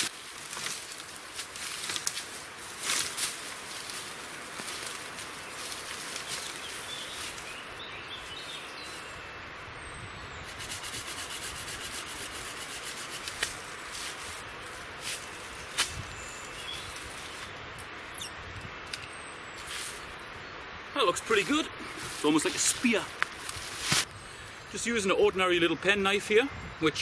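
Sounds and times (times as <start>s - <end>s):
birds chirping: 4.0s - 13.2s, 14.4s - 23.4s
knife scraping a stick: 10.4s - 14.2s.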